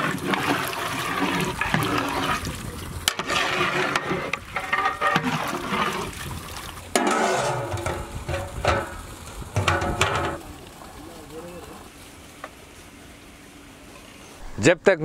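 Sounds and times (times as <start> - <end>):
water sloshing in a pot: 0.0 - 10.9
metal pot lid: 3.1 - 5.6, 6.9 - 10.4.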